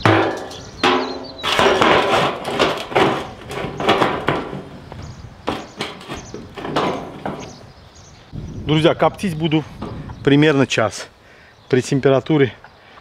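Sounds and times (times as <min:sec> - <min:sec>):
metal lid clanking: 0:00.0 - 0:07.6.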